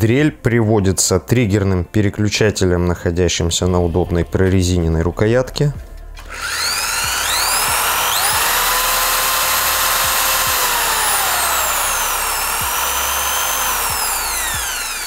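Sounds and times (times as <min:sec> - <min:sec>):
electric drill motor whining: 0:06.2 - 0:15.0.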